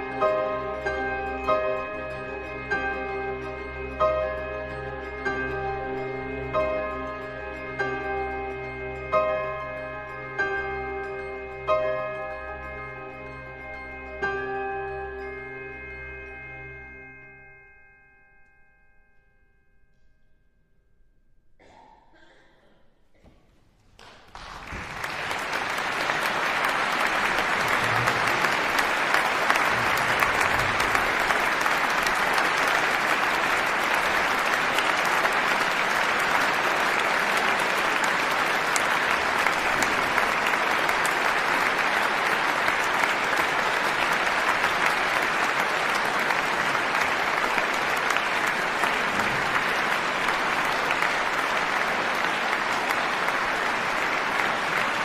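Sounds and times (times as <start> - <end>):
audience applause: 24.0 - 55.0.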